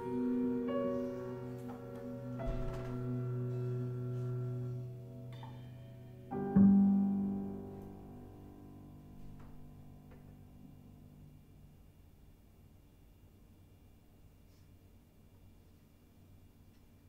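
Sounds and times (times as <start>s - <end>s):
low piano chord ringing: 0.0s - 11.8s.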